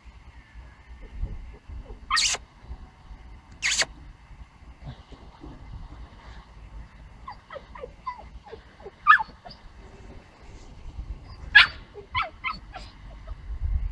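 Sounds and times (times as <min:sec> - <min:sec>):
puppy yipping: 0:01.8 - 0:02.4, 0:03.6 - 0:03.9, 0:07.2 - 0:09.7, 0:11.2 - 0:13.4.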